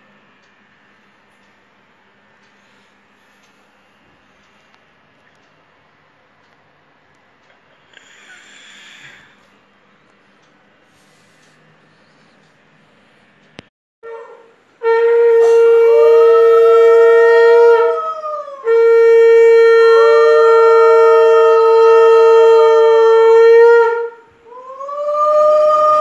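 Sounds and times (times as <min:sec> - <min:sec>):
conch shell blasts: 0:14.8 - 0:17.9.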